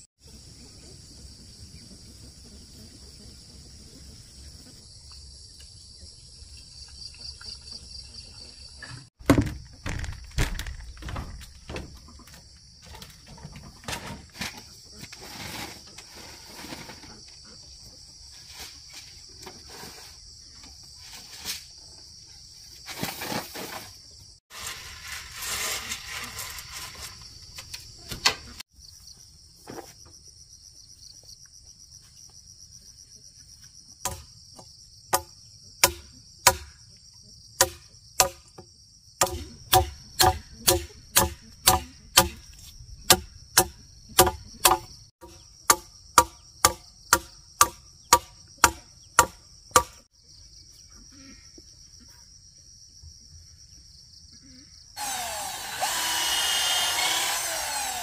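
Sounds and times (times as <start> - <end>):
blade chopping wood: 9.2 - 12.0, 34.1 - 34.3, 35.2 - 36.8, 37.6 - 38.6, 39.2 - 50.0
insect drone: 18.6 - 58.0.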